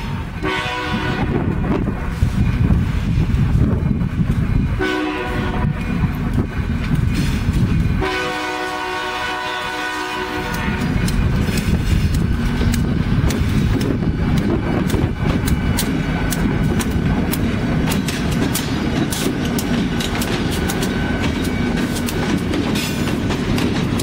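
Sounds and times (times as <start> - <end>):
low rumble of train: 0.0 - 24.0
locomotive air horn: 0.4 - 1.4, 4.8 - 5.8, 8.0 - 11.0
wheels clicking on rails: 5.6 - 8.0, 10.2 - 24.0.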